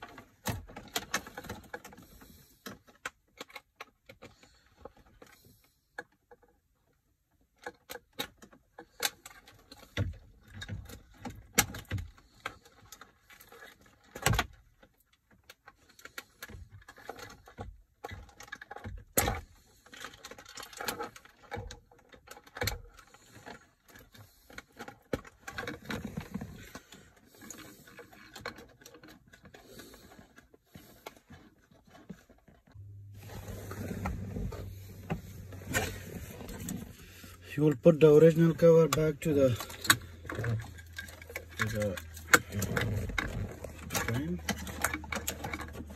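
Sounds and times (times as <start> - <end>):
steady low hum: 32.8 - 37.5.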